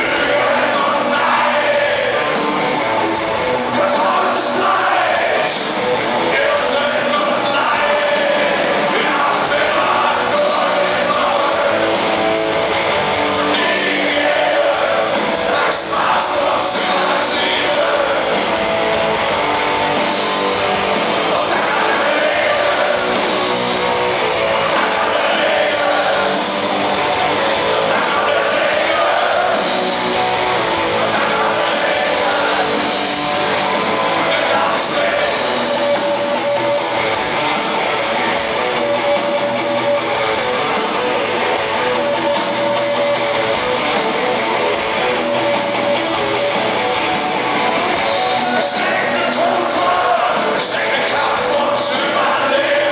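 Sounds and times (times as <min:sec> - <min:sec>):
man singing lead vocal: 0:00.0 - 0:02.4, 0:03.6 - 0:12.0, 0:13.3 - 0:18.4, 0:21.2 - 0:23.4, 0:24.5 - 0:26.4, 0:27.7 - 0:29.7, 0:30.9 - 0:33.0, 0:34.1 - 0:35.9, 0:48.3 - 0:52.9
electric guitars: 0:00.0 - 0:52.9.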